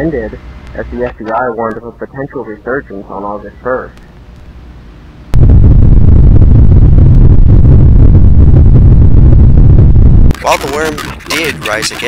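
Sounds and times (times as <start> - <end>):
loud distorted low rumble: 5.3 - 12.0.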